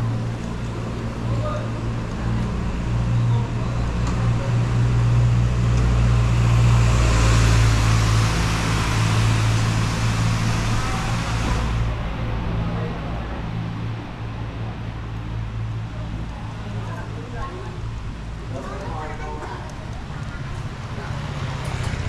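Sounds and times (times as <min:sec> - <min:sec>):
vehicle passing: 0:00.0 - 0:13.9
low engine hum: 0:00.0 - 0:22.0.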